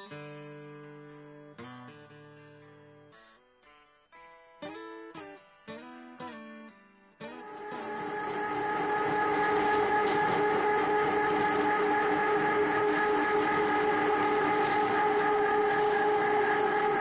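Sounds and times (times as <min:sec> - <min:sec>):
machinery droning: 0:07.4 - 0:17.0.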